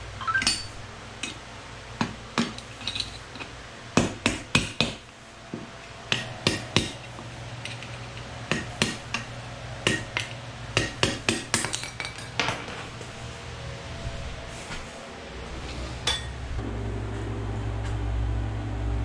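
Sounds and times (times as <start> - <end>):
low steady hum: 12.9 - 19.0.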